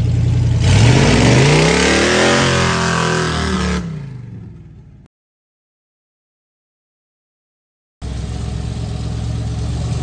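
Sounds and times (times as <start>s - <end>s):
truck engine revving: 0.0s - 4.6s.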